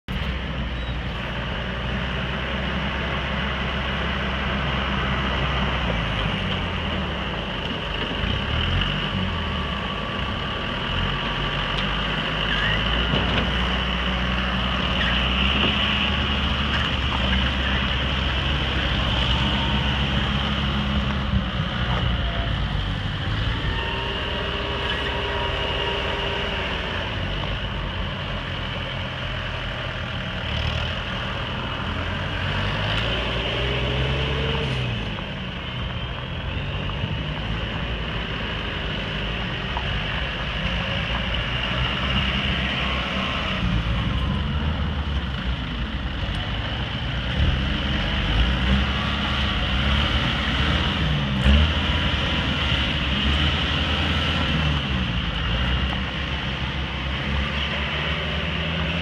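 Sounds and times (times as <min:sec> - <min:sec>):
diesel tractor engines running: 0:00.1 - 0:59.0.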